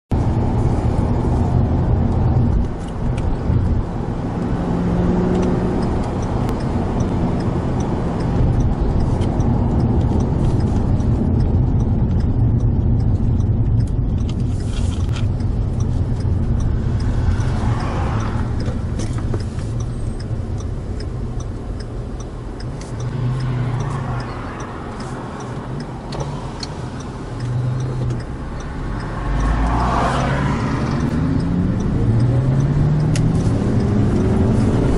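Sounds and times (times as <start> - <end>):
car engine running steadily: 0.1 - 34.9
road and tyre noise: 0.1 - 34.9
light regular ticking: 0.2 - 34.9.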